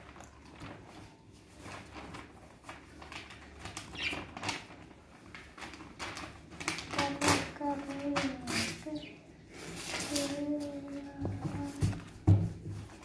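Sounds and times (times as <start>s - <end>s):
rustles and light taps: 9.7s - 13.0s.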